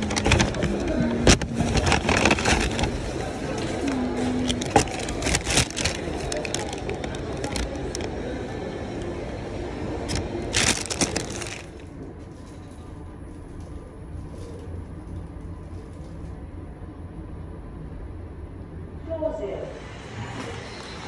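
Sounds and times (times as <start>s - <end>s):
paper bag rustling and crinkling: 0.0s - 8.2s, 10.1s - 12.6s
steady background hum: 0.0s - 21.0s.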